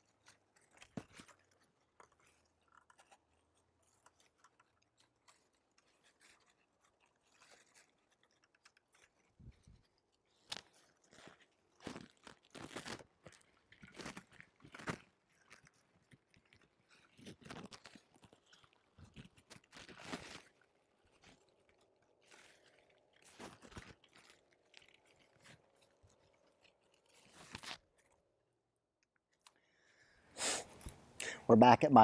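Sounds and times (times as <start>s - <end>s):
faint crunchy rustles: 0.0s - 28.4s.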